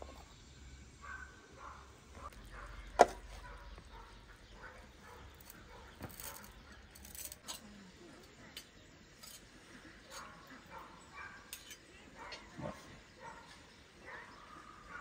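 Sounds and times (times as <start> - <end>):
utensils clinking on plates and tray: 6.1 - 10.3, 11.5 - 12.4.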